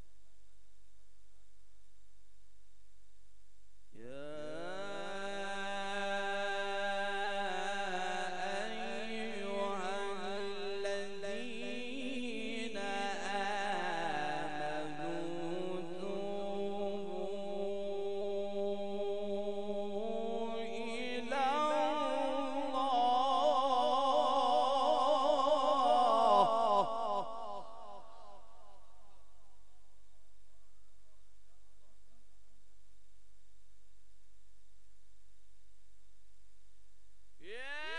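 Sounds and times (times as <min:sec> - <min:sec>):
man reciting melodically: 0:04.0 - 0:28.8, 0:37.4 - 0:37.9.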